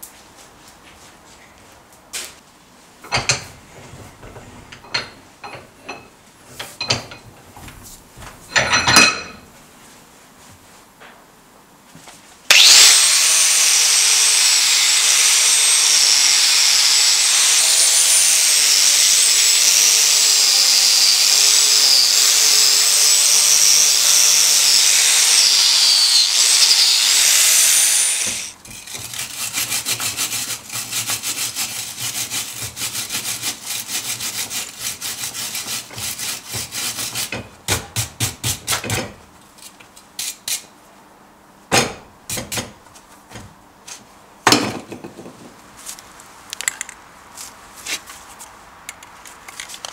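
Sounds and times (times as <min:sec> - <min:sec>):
power grinder whining on steel: 0:12.5 - 0:28.6
wire brush scrubbing steel: 0:12.5 - 0:37.3.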